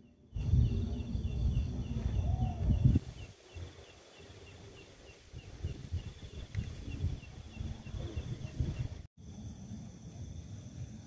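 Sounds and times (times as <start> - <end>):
wind buffeting microphone: 0.3 - 9.1.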